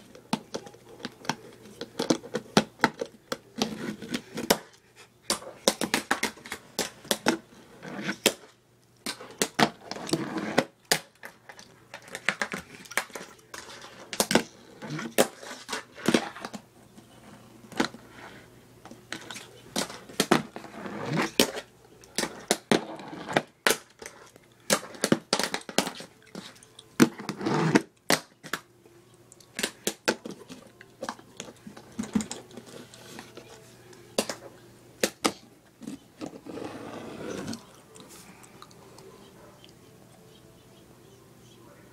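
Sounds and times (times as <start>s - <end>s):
fingerboard scraping rolls: 20.4s - 21.4s, 36.2s - 37.6s.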